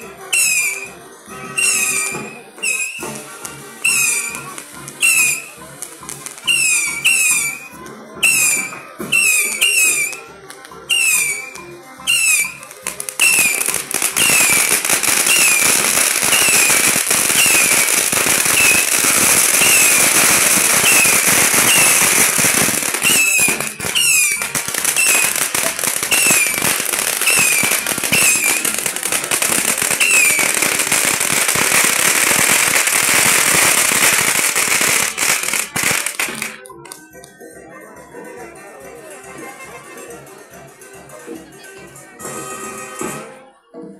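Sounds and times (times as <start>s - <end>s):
fireworks crackling and popping: 0.0s - 37.3s
falling firework whistle: 0.2s - 5.6s, 6.4s - 10.3s, 10.9s - 36.6s.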